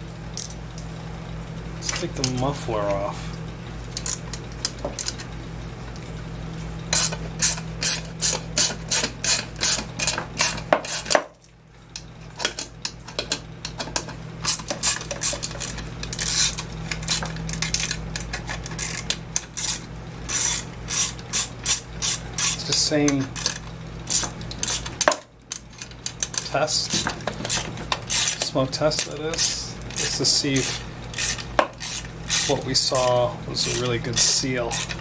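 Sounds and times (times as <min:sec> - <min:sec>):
steady low hum: 0:00.0 - 0:35.0
ratchet wrench clicking: 0:18.7 - 0:22.6, 0:27.4 - 0:35.0.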